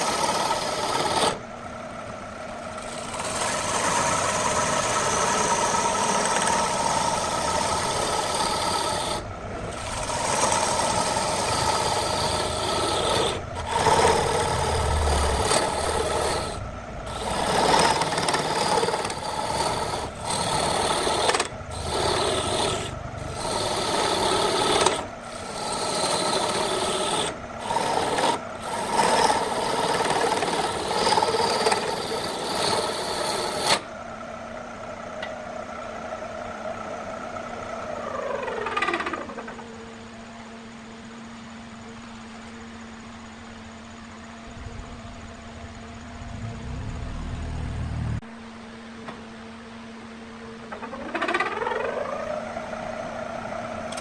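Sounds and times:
lathe tool scraping wood: 0.0s - 1.5s, 2.5s - 33.9s, 37.6s - 39.7s.

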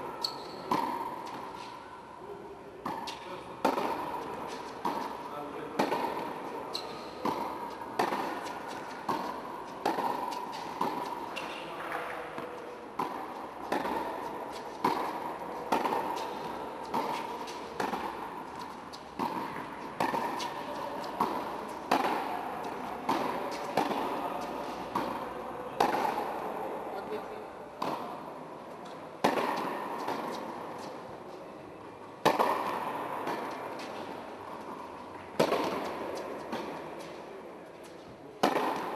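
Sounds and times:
tennis ball bounces: 0.0s - 1.8s, 2.8s - 31.4s, 32.0s - 38.9s
tennis racket strikes: 0.1s - 1.8s, 2.8s - 26.6s, 27.7s - 31.2s, 32.2s - 37.4s, 38.4s - 38.9s.

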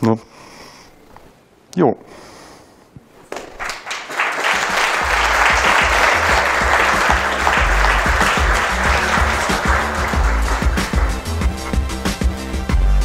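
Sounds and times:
audience applauding: 3.3s - 12.2s
instrumental music with repeating bass: 5.0s - 13.0s.

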